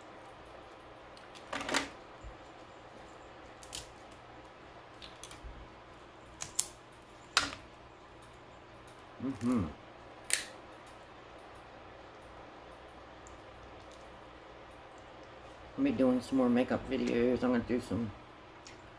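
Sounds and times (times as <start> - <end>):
crab shell cracking: 3.5 - 4.2, 4.9 - 5.4, 6.3 - 6.8, 8.9 - 9.6, 10.2 - 15.4.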